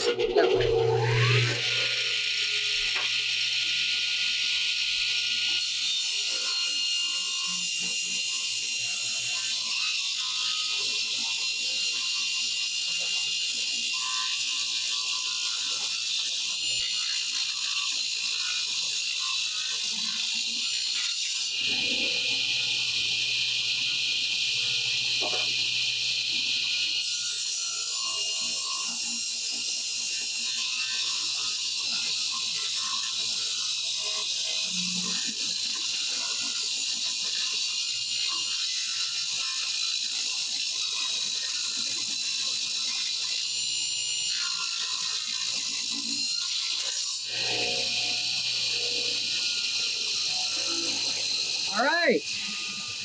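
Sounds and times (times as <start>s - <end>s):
table saw ripping board: 25.2s - 25.6s.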